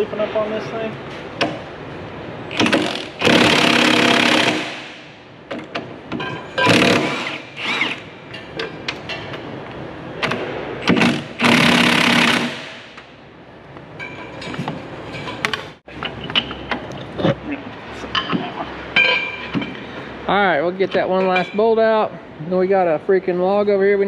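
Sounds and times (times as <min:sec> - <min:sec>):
impact wrench hammering on bolts: 0:02.5 - 0:09.3, 0:10.2 - 0:13.1.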